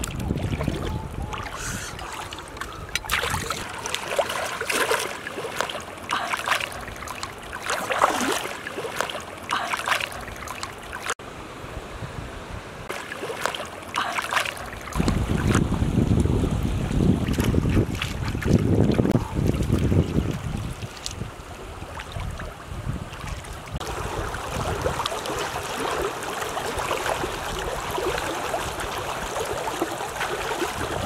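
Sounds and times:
wind rumbling on microphone: 0:00.0 - 0:03.7, 0:14.9 - 0:31.0
water splashing and sloshing: 0:00.0 - 0:11.8, 0:12.4 - 0:31.0.

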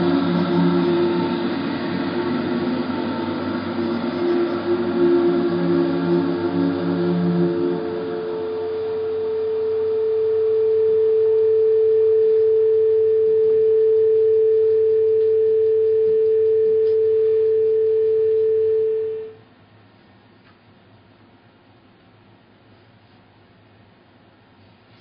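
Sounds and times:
steady pure tone: 0:00.0 - 0:19.5
faint room noise: 0:00.0 - 0:25.0.

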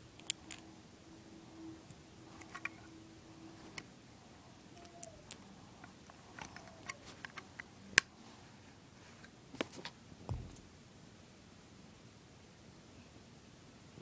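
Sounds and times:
soft low thump: 0:10.3 - 0:10.6.

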